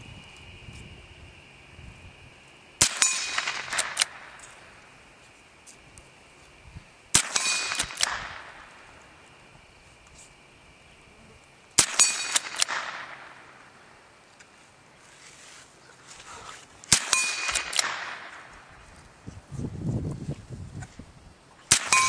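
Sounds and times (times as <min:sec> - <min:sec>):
steel plate target ringing: 0:02.8 - 0:04.4, 0:07.1 - 0:09.0, 0:11.8 - 0:13.6, 0:16.9 - 0:18.7, 0:21.7 - 0:22.0
rifle shots: 0:02.8 - 0:04.6, 0:07.1 - 0:09.0, 0:11.8 - 0:13.7, 0:16.9 - 0:18.7, 0:21.7 - 0:22.0.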